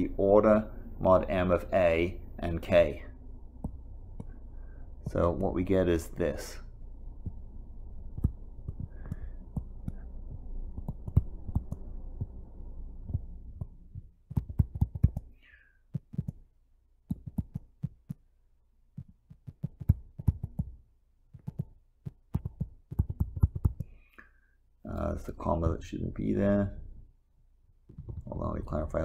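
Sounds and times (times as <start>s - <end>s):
faint low hum: 0.0s - 29.0s
stylus tapping on tablet screen: 3.6s - 4.4s, 7.2s - 7.4s, 8.1s - 12.4s, 13.0s - 18.3s, 18.9s - 24.0s, 27.9s - 28.3s.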